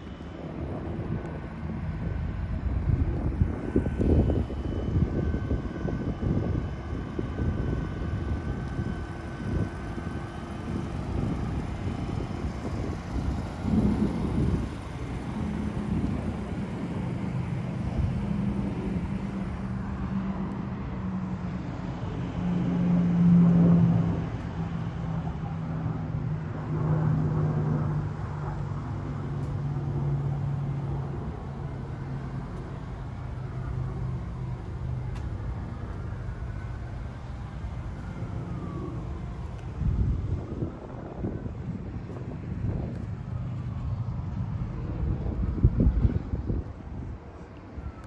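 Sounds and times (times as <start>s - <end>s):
motor engine humming: 0.0s - 22.3s, 23.8s - 48.0s
traffic noise: 0.0s - 48.0s.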